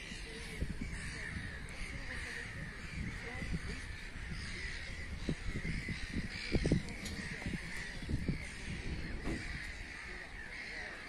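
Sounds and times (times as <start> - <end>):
crows cawing: 0.0 - 11.0.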